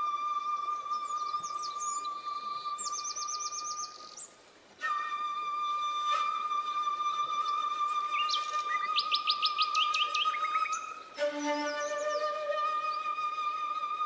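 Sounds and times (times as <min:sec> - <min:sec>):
calm meditation music: 0:00.0 - 0:14.0
birdsong chirping: 0:00.8 - 0:04.4, 0:07.4 - 0:13.2.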